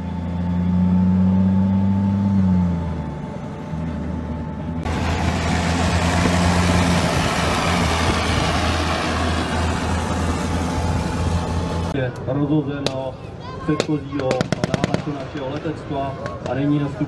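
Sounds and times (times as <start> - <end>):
diesel engine humming: 0.0 - 17.0
loud rushing noise: 4.8 - 12.0.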